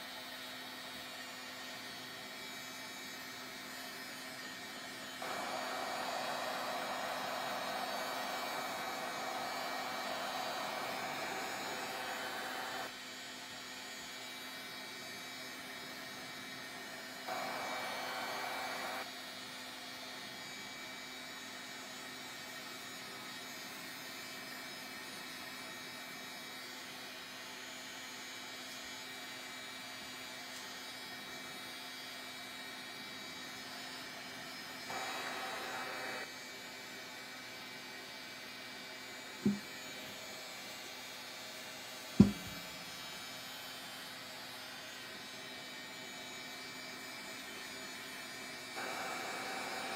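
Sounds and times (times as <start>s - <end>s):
heat tool blowing hot air: 1.1s - 13.1s, 16.1s - 19.1s, 33.1s - 49.9s.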